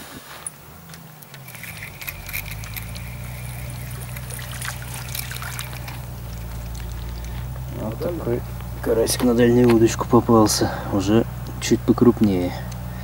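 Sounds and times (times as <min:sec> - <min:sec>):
fish splashing at water surface: 0:01.4 - 0:07.6.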